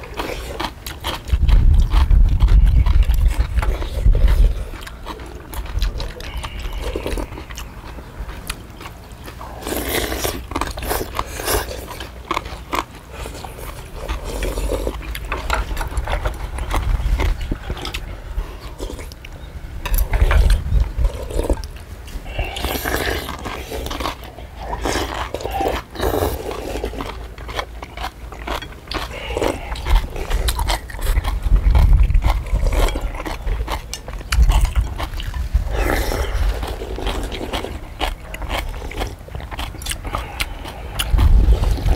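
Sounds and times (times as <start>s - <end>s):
low rumble: 13.9s - 22.8s, 40.0s - 41.9s
people slurping noodles: 20.0s - 27.0s, 35.5s - 39.1s.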